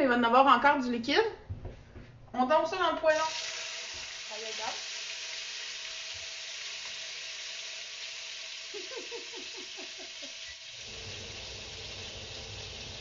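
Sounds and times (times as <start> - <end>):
hot oil sizzling in wok: 3.1 - 13.0
range hood fan rumble: 10.7 - 13.0.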